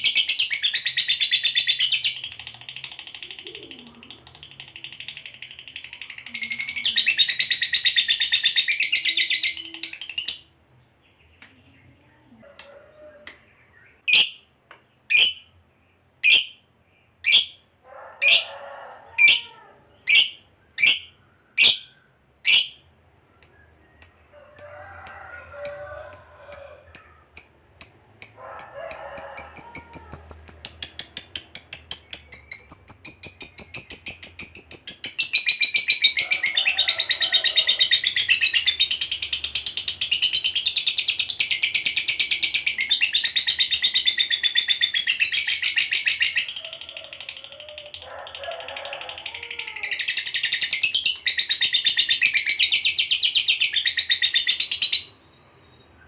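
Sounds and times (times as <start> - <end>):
lovebird chattering trill: 0.0 - 10.5, 14.1 - 14.4, 15.1 - 15.5, 16.2 - 16.6, 20.0 - 22.8, 23.4 - 46.6.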